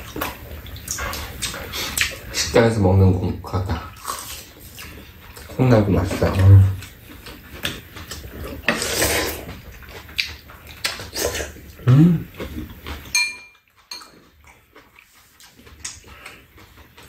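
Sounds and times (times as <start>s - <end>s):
soup slurping and chewing: 0.0s - 2.5s, 3.9s - 17.0s
person humming: 11.8s - 12.3s
spoon clinking on bowl: 13.1s - 14.1s
spoons clicking against ceramic bowls: 13.1s - 14.1s.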